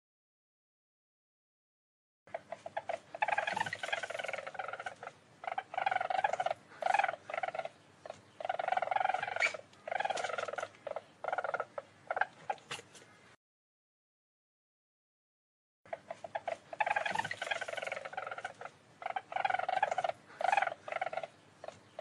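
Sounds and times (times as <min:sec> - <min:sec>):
weasel trilling calls: 0:02.3 - 0:13.1, 0:15.9 - 0:22.0.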